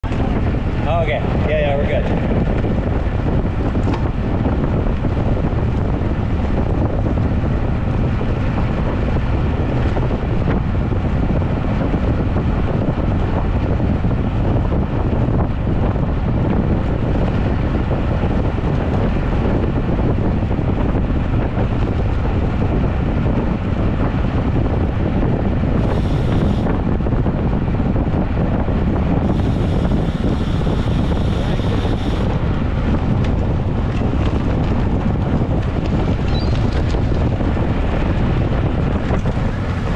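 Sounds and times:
wind rushing over microphone: 0.0s - 39.9s
thin high buzz: 25.8s - 26.7s, 29.2s - 32.3s.

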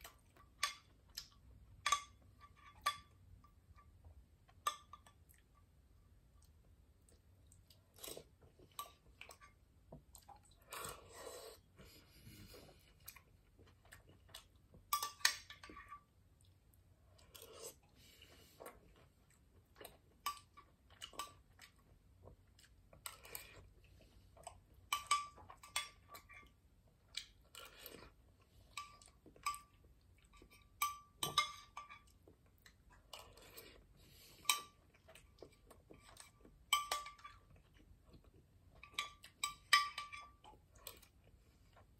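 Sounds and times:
person chewing: 6.4s - 15.7s, 16.4s - 30.7s, 32.0s - 39.5s.

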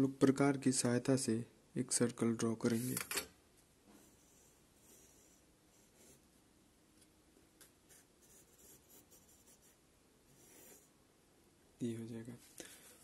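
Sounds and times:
pencil scratching on paper: 4.0s - 6.2s, 7.9s - 10.9s.

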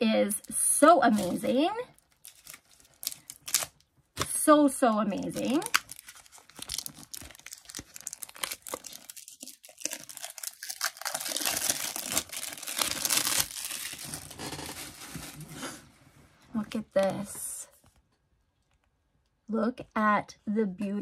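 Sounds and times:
plastic wrapping tearing and crinkling: 2.0s - 4.4s, 5.2s - 15.8s.

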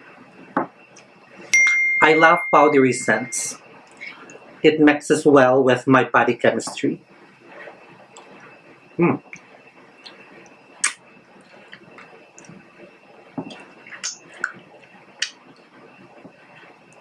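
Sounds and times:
wet chewing and mouth smacks: 10.8s - 11.0s, 13.5s - 14.6s.

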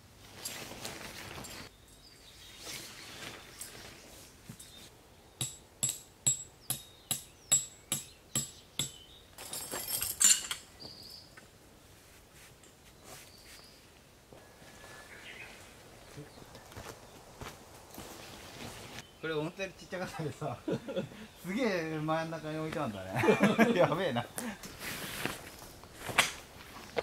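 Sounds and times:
rustling: 0.2s - 1.7s, 2.3s - 4.9s, 9.4s - 19.0s, 24.6s - 27.0s
tent peg being hammered: 5.4s - 9.0s.

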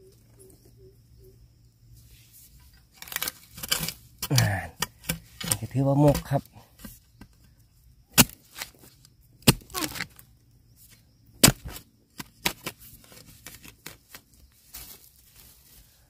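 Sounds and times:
spade chopping into soil: 8.1s - 10.2s, 11.4s - 14.1s
crackling: 8.2s - 10.2s.

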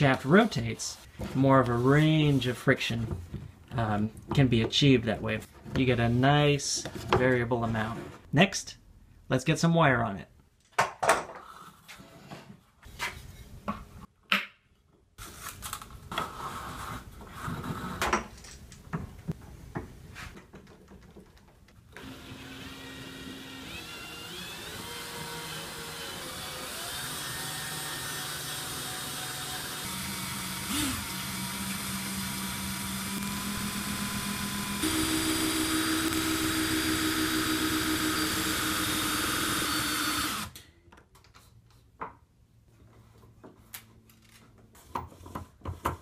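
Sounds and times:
wooden parts and tools knocking: 18.2s - 21.8s
cordless drill running: 22.0s - 40.6s.

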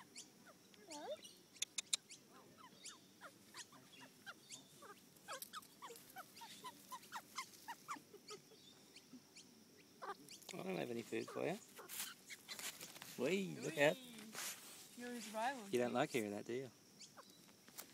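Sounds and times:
magpie squeaky calls: 0.0s - 9.4s, 10.0s - 10.4s, 11.2s - 12.8s, 17.0s - 17.4s.

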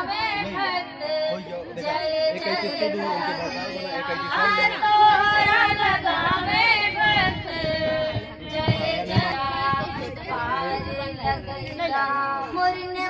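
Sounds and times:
woman singing unaccompanied: 0.0s - 13.0s
low thumps: 4.9s - 11.9s.

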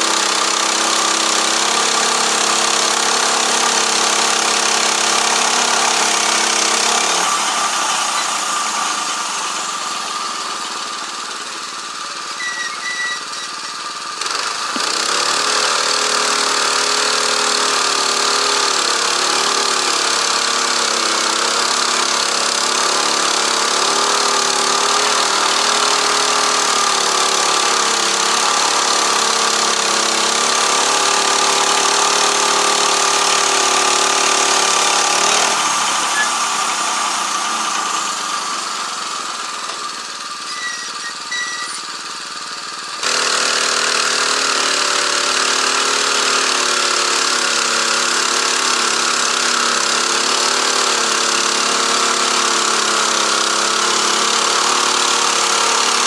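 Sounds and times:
band saw cutting log: 0.0s - 56.0s
sawmill engine running: 0.0s - 56.0s
faint high chirps: 12.2s - 13.9s, 36.0s - 36.5s, 40.4s - 42.0s.

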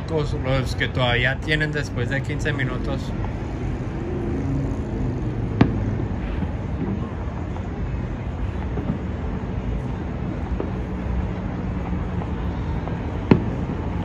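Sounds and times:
low city rumble: 0.0s - 14.0s
distant fireworks popping: 0.5s - 14.0s.

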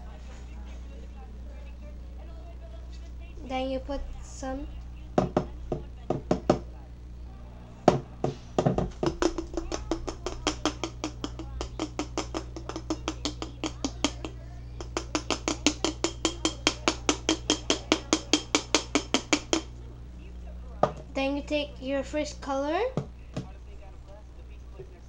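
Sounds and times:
glitter container shaking taps: 7.9s - 19.8s.

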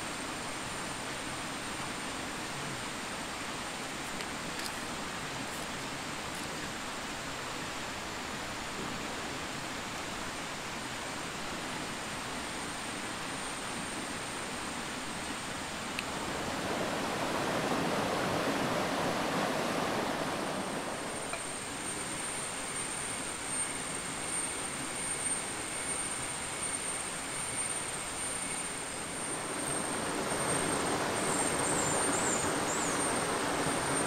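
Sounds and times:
stream water rushing: 0.0s - 34.0s
thin high steady tone: 15.9s - 34.0s.

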